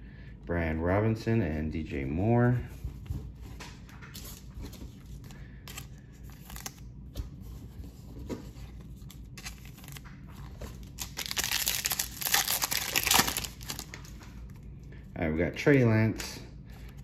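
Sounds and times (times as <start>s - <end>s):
foil wrapper tearing and crinkling: 10.7s - 14.1s.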